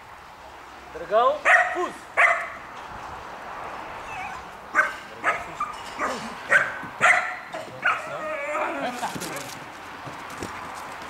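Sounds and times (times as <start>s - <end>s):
dog barking: 1.4s - 2.6s, 4.3s - 8.7s.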